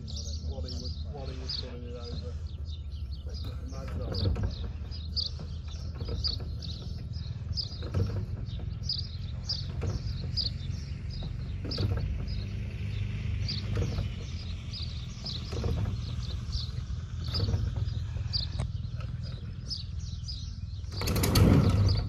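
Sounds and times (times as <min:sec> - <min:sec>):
songbird chirping: 0:00.0 - 0:22.0
soft knocks of propeller: 0:03.2 - 0:19.8.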